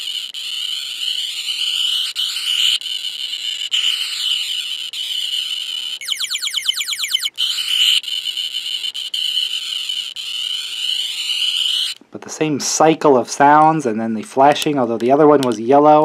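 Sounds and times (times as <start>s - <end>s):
toy electronic sound effects: 6.0s - 7.3s.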